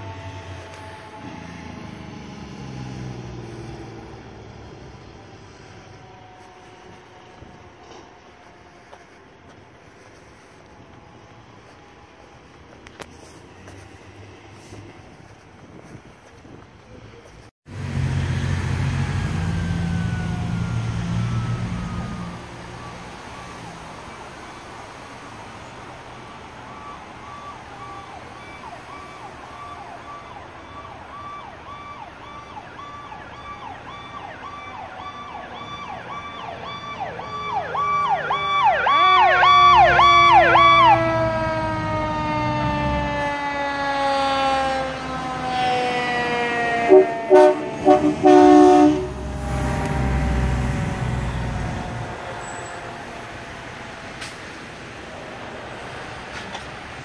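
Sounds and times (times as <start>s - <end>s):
low rumble of truck engines: 0.0s - 57.0s
siren wailing and yelping: 19.0s - 23.9s, 26.2s - 53.8s
train horn blasts: 46.9s - 52.1s.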